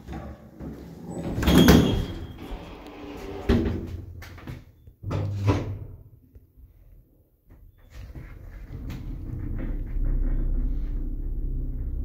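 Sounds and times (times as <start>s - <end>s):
short low hum: 9.2s - 12.0s.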